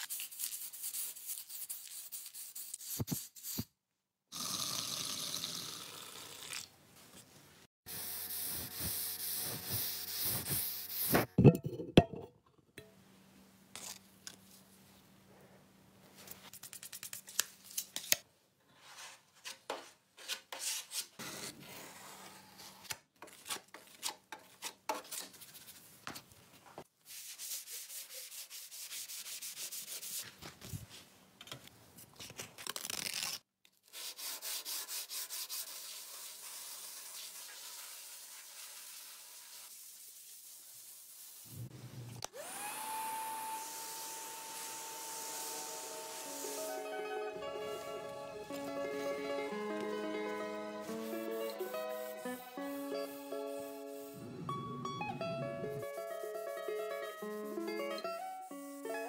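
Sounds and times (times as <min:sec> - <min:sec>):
hand sanding strokes: 0:07.9 - 0:11.3, 0:27.0 - 0:30.3, 0:33.9 - 0:41.6, 0:42.4 - 0:46.8, 0:50.8 - 0:54.2, 0:55.8 - 0:58.8.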